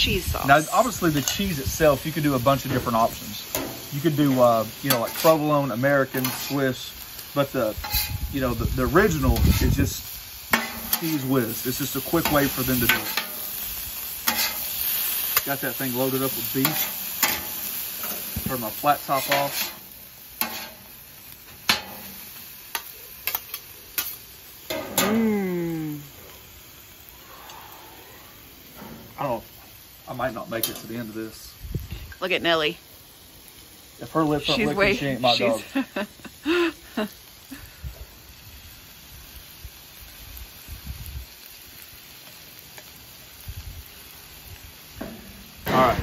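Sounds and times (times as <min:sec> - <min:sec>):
faint sizzle: 0:00.0 - 0:46.0
metal spatulas scraping griddle: 0:02.5 - 0:06.8, 0:07.8 - 0:08.5, 0:09.2 - 0:13.5, 0:14.2 - 0:14.8, 0:15.4 - 0:20.9
drawn-out voice-like call: 0:27.2 - 0:28.5.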